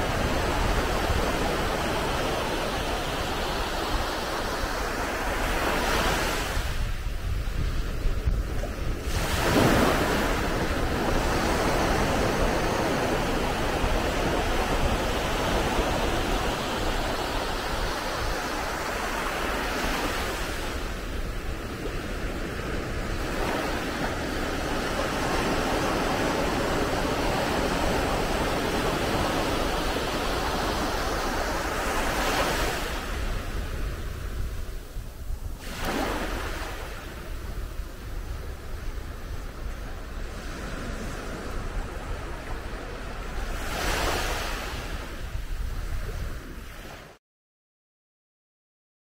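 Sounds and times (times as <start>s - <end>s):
waves washing on sandy beach: 0.0s - 47.2s.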